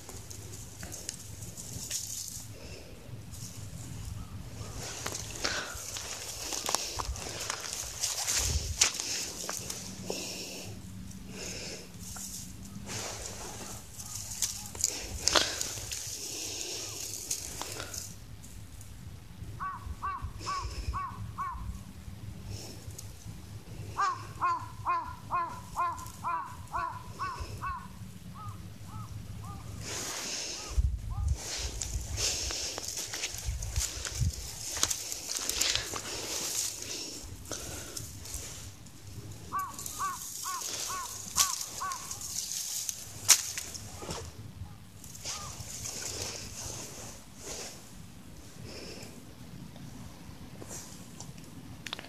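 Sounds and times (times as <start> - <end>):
bird calling: 4.0 - 10.5, 12.6 - 17.9, 19.6 - 21.8, 23.9 - 31.6, 39.4 - 42.6, 44.0 - 46.5.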